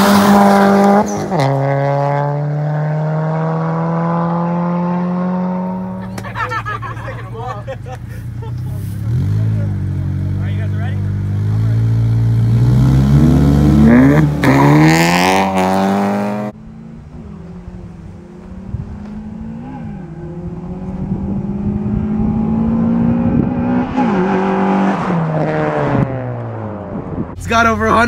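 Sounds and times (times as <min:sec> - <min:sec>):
car engine revving hard: 0:00.0 - 0:06.1, 0:08.9 - 0:16.6, 0:18.5 - 0:27.0
racing cars passing: 0:00.0 - 0:28.0.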